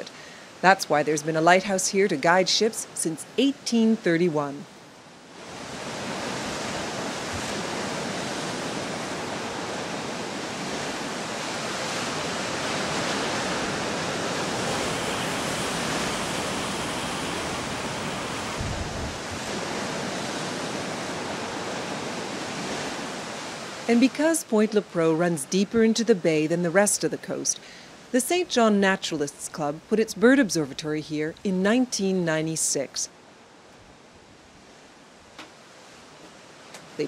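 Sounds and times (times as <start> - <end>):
sea surf washing over rocks: 5.4 - 25.2.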